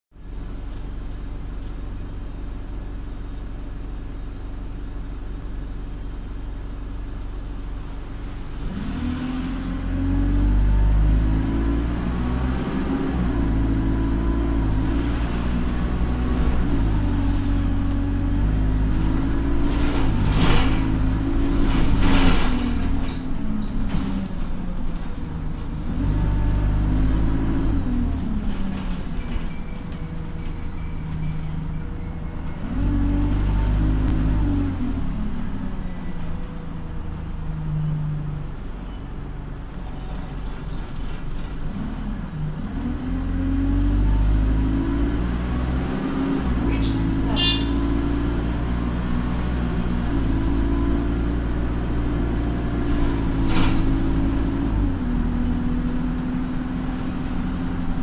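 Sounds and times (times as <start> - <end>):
bus engine accelerating through gears: 0.2 - 58.0.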